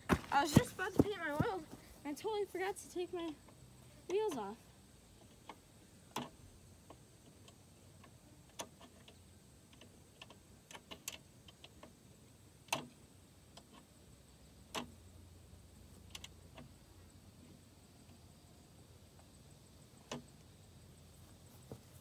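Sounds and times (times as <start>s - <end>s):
sharp clicks and knocks: 5.2s - 12.0s, 12.7s - 13.9s.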